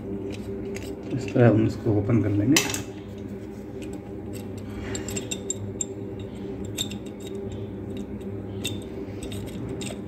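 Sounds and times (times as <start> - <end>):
steady low hum: 0.0 - 10.0
small metallic clicks and scraping: 3.2 - 10.0.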